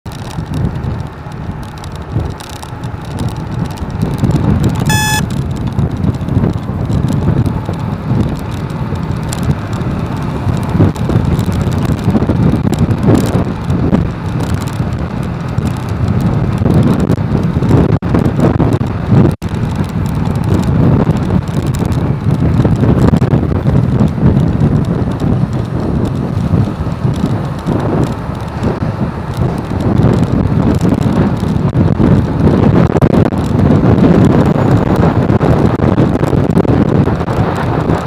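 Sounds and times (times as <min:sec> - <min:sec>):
motorbike rumble: 0:00.1 - 0:38.0
road traffic: 0:00.1 - 0:38.0
wind buffeting microphone: 0:00.1 - 0:38.0
short high beep: 0:04.9 - 0:05.3.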